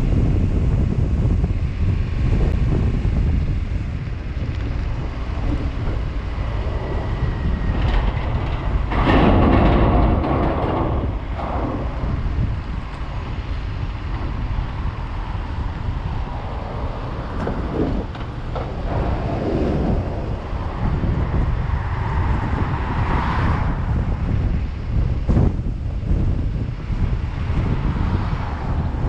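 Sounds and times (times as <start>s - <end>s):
traffic rumble: 0.0s - 29.0s
wind on microphone: 0.0s - 29.0s
vehicle passing: 12.2s - 24.9s.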